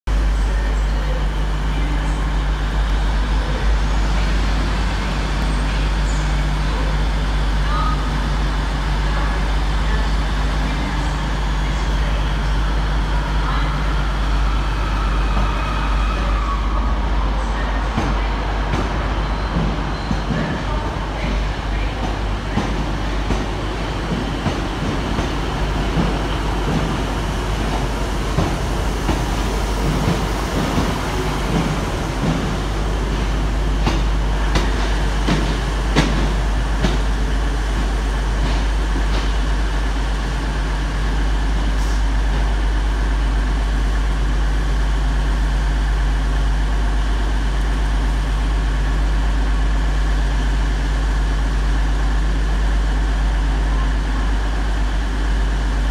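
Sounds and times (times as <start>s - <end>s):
diesel train engines rumbling: 0.0s - 55.9s.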